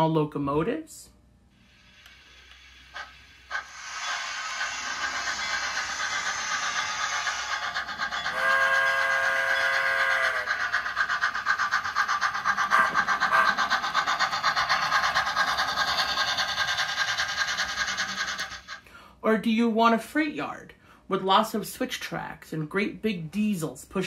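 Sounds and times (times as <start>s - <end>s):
locomotive chuffing: 2.0s - 19.1s
steam whistle: 8.3s - 10.6s, 12.7s - 13.6s.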